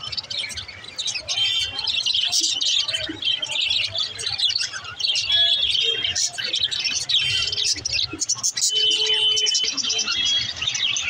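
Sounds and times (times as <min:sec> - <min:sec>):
budgerigars chirping and warbling: 0:00.0 - 0:11.0.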